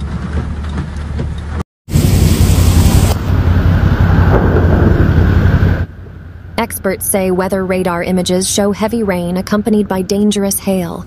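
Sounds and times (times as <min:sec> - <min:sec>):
heavy rain: 0:01.9 - 0:05.9
wind buffeting microphone: 0:01.9 - 0:06.2.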